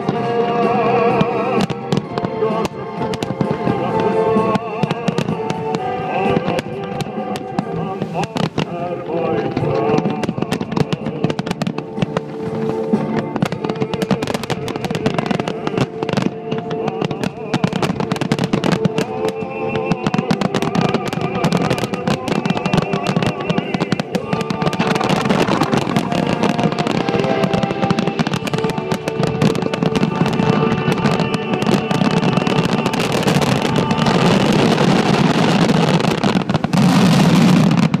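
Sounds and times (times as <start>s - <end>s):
fireworks bangs and crackle: 0.0s - 38.0s
music playing: 0.0s - 38.0s.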